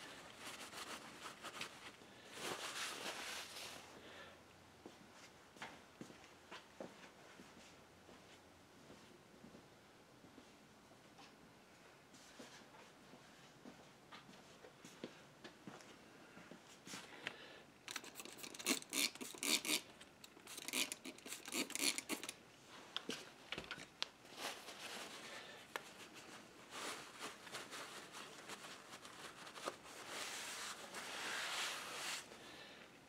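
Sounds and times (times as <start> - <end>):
paper towel rubbing: 0.1 - 3.8, 26.0 - 32.3
soft rubbing: 0.1 - 3.9, 24.3 - 32.4
scratchy scrubbing strokes: 29.9 - 32.3.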